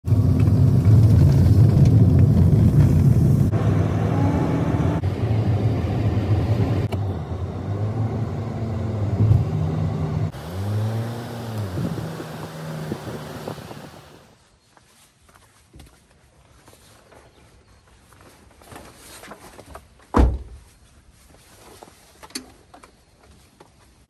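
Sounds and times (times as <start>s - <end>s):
vehicle engine running: 0.0s - 14.4s.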